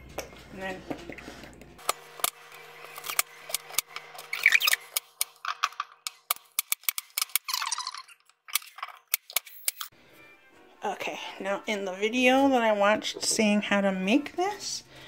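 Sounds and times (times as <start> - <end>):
brief squeaks: 4.3 - 4.9.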